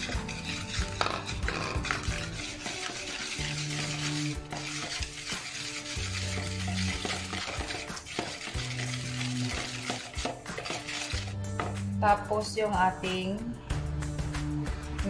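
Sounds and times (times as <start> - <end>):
whisk beating in bowl: 0.0 - 11.9
whisk wires tapping bowl: 0.0 - 11.9
soft background music: 0.0 - 15.0.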